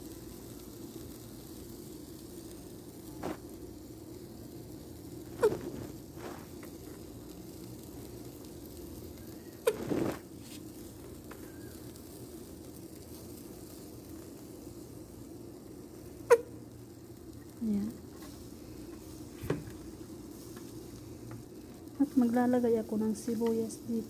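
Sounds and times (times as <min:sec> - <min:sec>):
squeeze bottle sputtering: 0:09.4 - 0:10.6.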